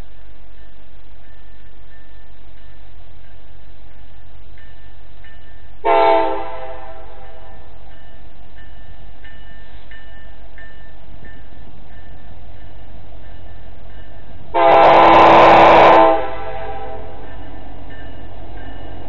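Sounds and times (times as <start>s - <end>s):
steady low rumble: 0.0s - 5.9s
locomotive air horn blast: 5.8s - 7.6s, 14.5s - 17.2s.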